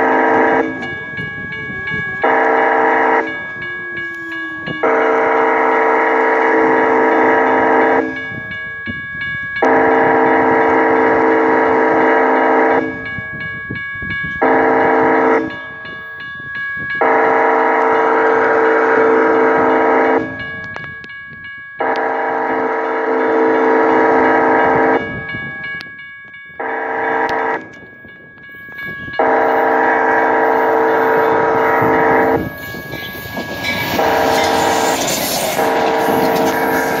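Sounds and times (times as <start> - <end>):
locomotive air horn blasts: 0.0 - 0.8, 2.2 - 3.3, 4.2 - 8.2, 9.6 - 12.9, 14.4 - 15.5, 17.0 - 20.4, 21.8 - 25.0, 26.6 - 27.7, 29.2 - 32.9, 33.8 - 37.0
crossing warning bell ringing: 0.0 - 37.0.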